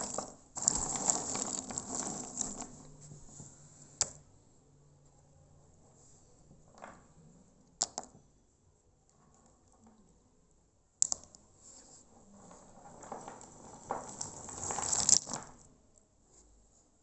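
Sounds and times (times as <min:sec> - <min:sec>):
dried nuts clattering: 0:00.0 - 0:03.1, 0:12.4 - 0:15.7.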